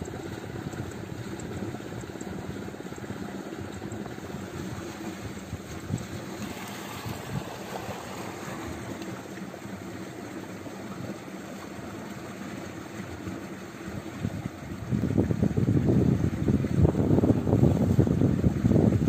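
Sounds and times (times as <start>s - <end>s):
faint low engine hum: 0.0s - 19.0s
wind buffeting on microphone: 3.7s - 9.2s, 13.9s - 19.0s.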